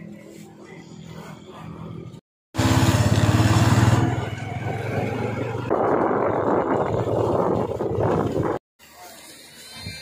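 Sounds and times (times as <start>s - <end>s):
wind and road noise: 1.9s - 8.6s
motorcycle engine running: 2.6s - 8.6s.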